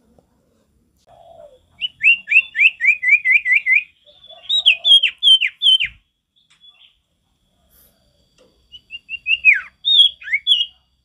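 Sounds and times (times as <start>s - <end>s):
bird whistled song: 1.3s - 7.0s, 8.6s - 10.8s.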